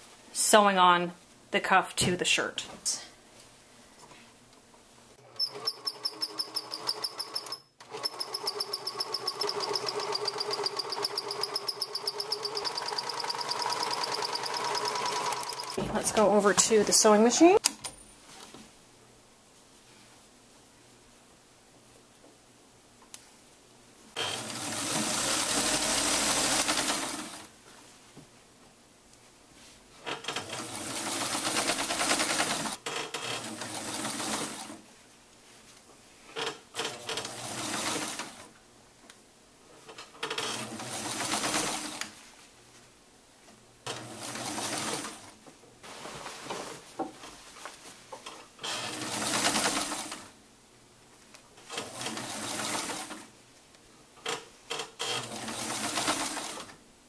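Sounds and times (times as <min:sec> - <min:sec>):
sewing machine stitching: 0:05.2 - 0:17.0, 0:24.2 - 0:27.5, 0:30.1 - 0:34.8, 0:36.4 - 0:38.5, 0:40.0 - 0:42.2, 0:43.9 - 0:45.3, 0:48.6 - 0:50.3, 0:51.6 - 0:53.3, 0:54.3 - 0:56.8.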